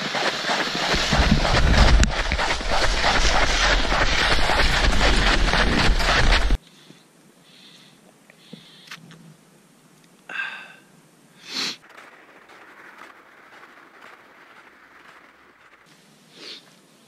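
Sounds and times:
sharp breath: 6.6s - 9.0s, 10.3s - 11.8s, 16.3s - 16.7s
sniff: 6.6s - 9.0s, 11.4s - 11.8s, 16.3s - 16.8s
faint steady hiss: 6.6s - 11.8s, 15.8s - 17.0s.

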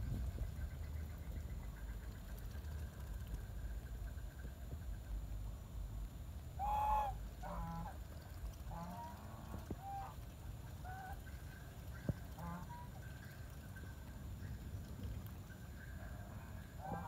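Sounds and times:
geese honking: 8.7s - 10.2s, 12.3s - 13.0s.

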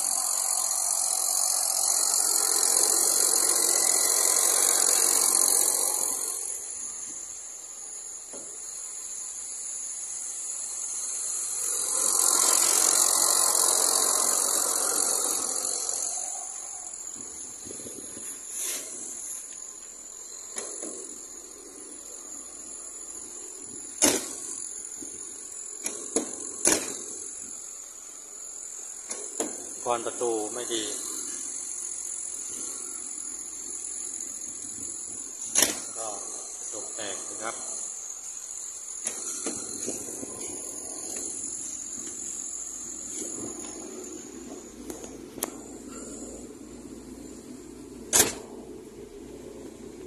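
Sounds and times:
car engine running: 30.5s - 50.0s.

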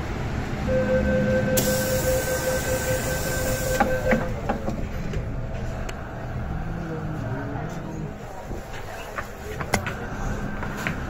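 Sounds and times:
door closing warning tone: 0.7s - 4.4s
air hissing: 1.6s - 4.0s.

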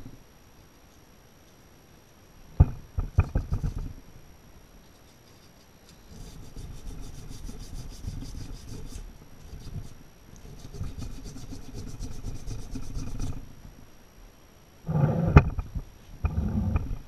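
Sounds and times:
hand tool scraping metal: 5.1s - 13.4s.

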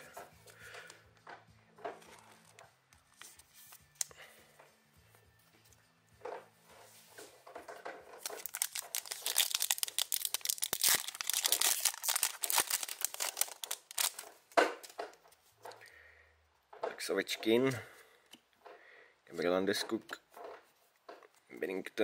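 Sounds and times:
foil wrapper tearing and crinkling: 8.2s - 14.3s.

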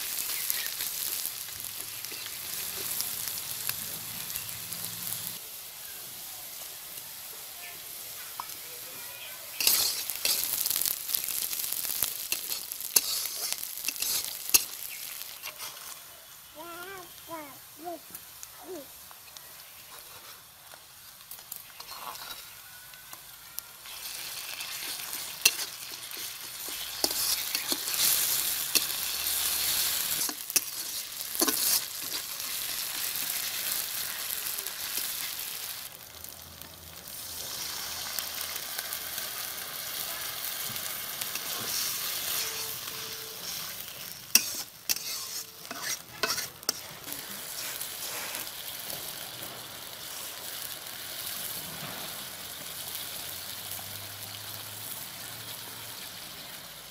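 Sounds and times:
onions sizzling in hot oil: 0.0s - 56.9s
spatula scraping a pan: 9.6s - 10.6s, 12.3s - 16.1s, 19.8s - 20.5s, 21.8s - 22.6s, 23.9s - 33.6s, 40.7s - 48.7s.

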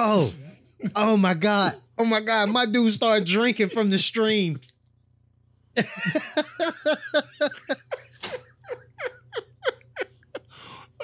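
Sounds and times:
men laughing hard: 5.8s - 10.7s.

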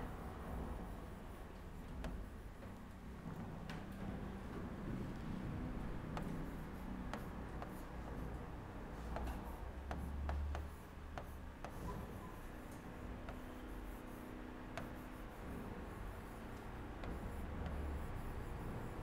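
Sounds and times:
stylus tapping on screen: 2.0s - 2.3s, 6.1s - 7.9s, 9.1s - 12.5s, 13.2s - 15.2s, 16.1s - 18.6s
stylus scratching: 5.8s - 19.0s.

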